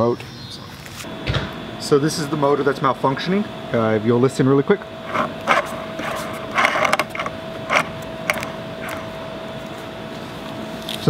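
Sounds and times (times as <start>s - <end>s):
motor clicking and rattling: 5.0s - 9.2s.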